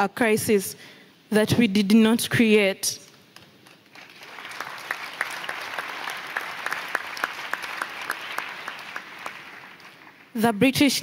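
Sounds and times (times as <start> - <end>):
audience applauding: 3.6 - 10.4.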